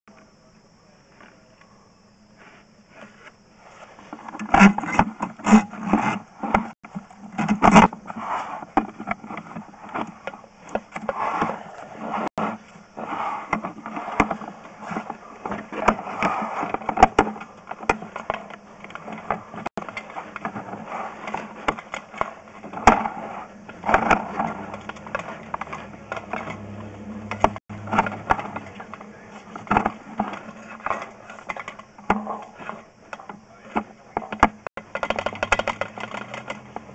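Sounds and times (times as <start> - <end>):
camera cable scraping in pipe: 2.9 - 26.6.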